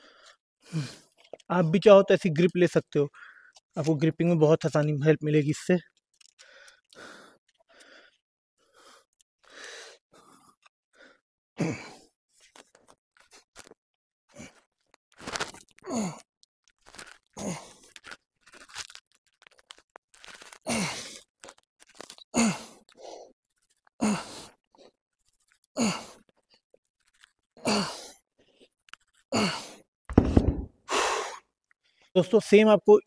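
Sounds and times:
heavy low thump: 0:30.1 - 0:30.7.

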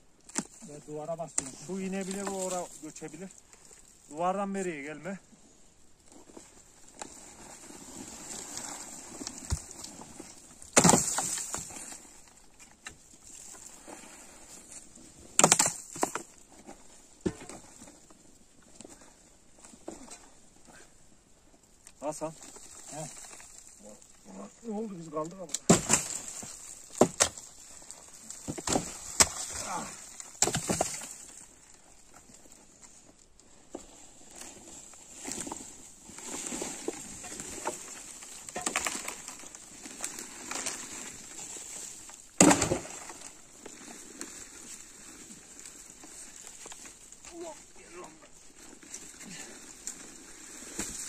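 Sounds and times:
stones scraping and knocking: 0:00.2 - 0:04.8, 0:06.0 - 0:20.4, 0:21.9 - 0:51.0
rubble crashing: 0:07.0 - 0:12.3, 0:22.1 - 0:32.2, 0:34.8 - 0:44.8.

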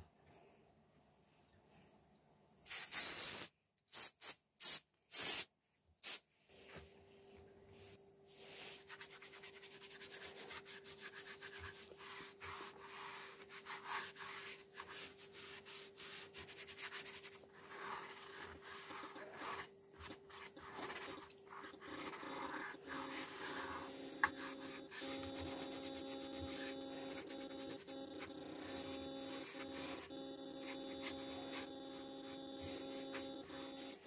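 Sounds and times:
sponge rubbing on board: 0:08.3 - 0:34.0
steady hum: 0:15.1 - 0:34.0.

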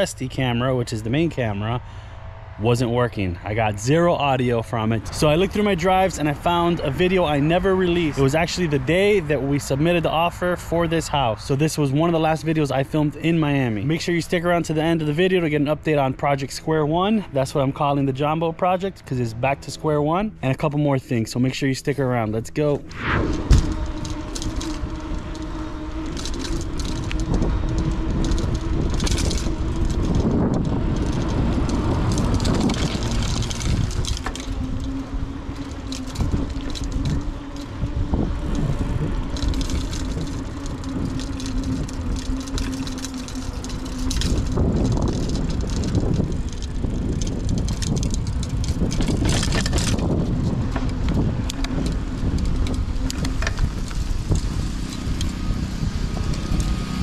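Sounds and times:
wind buffeting microphone: 0:00.0 - 0:18.4, 0:22.5 - 0:57.0
bike tyre rumble: 0:00.0 - 0:57.0
knocks and rattles over bumps: 0:23.5 - 0:57.0.

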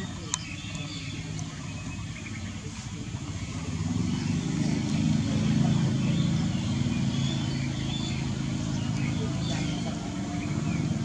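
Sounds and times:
motor engine humming: 0:00.0 - 0:11.0.

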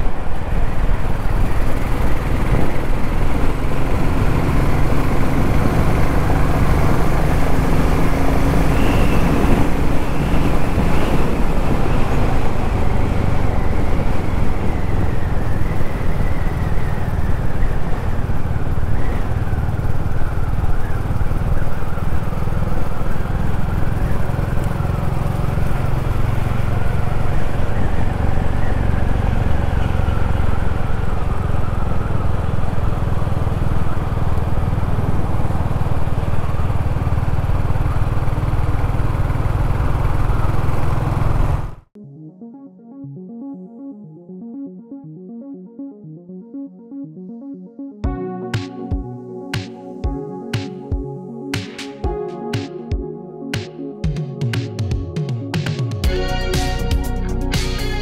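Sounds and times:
motorcycle engine running: 0:00.0 - 0:41.9.

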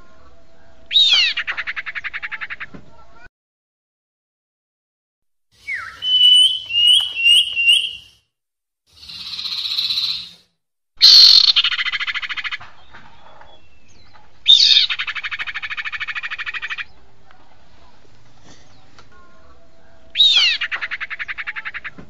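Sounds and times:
high chirping bird notes: 0:05.6 - 0:08.2, 0:09.0 - 0:10.4.

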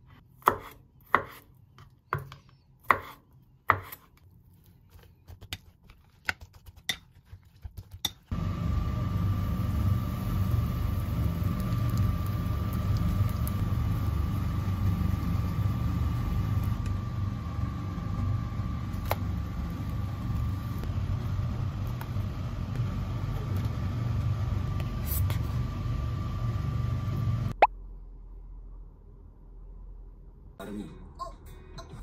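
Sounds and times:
kitchen fan humming: 0:08.1 - 0:27.6.

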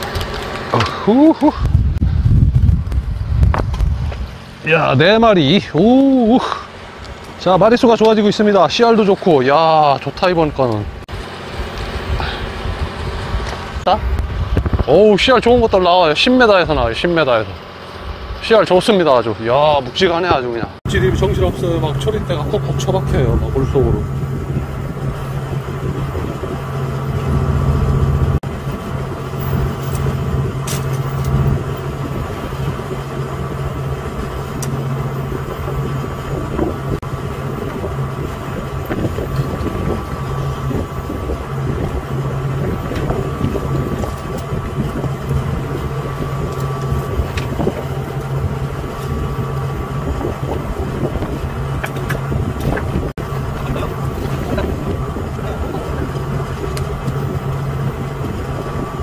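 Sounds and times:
boat engine humming: 0:00.0 - 0:59.0.

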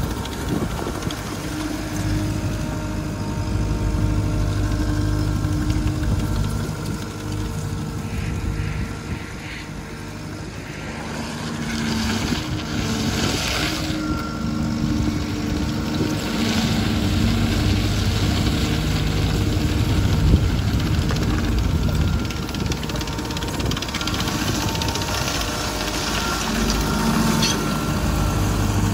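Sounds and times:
diesel engine idling: 0:00.0 - 0:12.8, 0:14.0 - 0:28.9.

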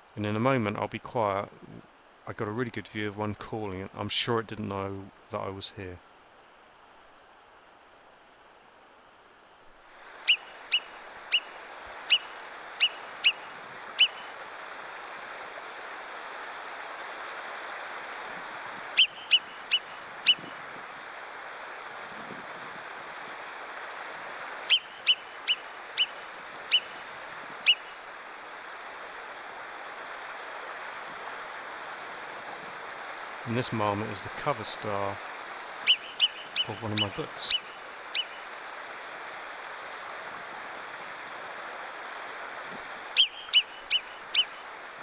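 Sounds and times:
marmot whistle calls: 0:10.3 - 0:11.5, 0:12.1 - 0:13.4, 0:14.0 - 0:14.2, 0:19.0 - 0:20.5, 0:24.7 - 0:26.9, 0:35.8 - 0:38.4, 0:43.2 - 0:44.6.

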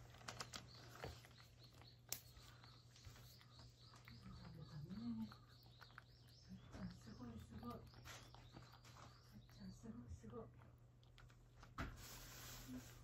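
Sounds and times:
bird chirps: 0:00.2 - 0:10.0.

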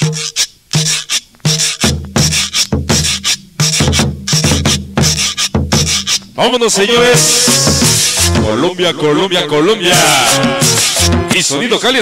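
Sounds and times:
cumbia music over sound system: 0:00.0 - 0:12.0.

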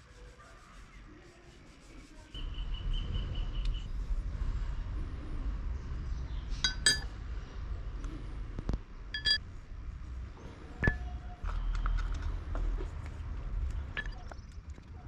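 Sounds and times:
low steady rumble: 0:02.9 - 0:15.0
metal knife parts clinking: 0:06.6 - 0:07.1, 0:09.2 - 0:09.4.

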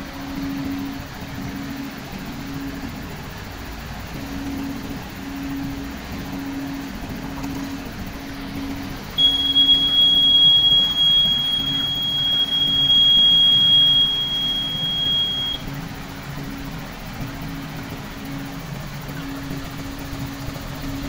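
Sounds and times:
diesel truck engine running: 0:00.0 - 0:21.0
high-pitched tone: 0:09.2 - 0:15.6.

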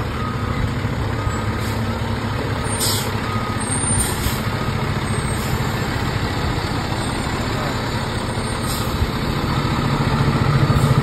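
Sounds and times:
fire truck diesel engine: 0:00.0 - 0:11.0
air brake hisses: 0:02.7 - 0:03.1, 0:03.8 - 0:04.5, 0:08.6 - 0:09.0.

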